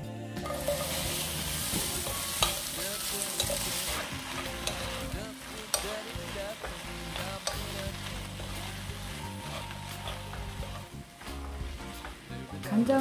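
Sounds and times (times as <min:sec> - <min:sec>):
vegetables sizzling in oil: 0:00.4 - 0:13.0.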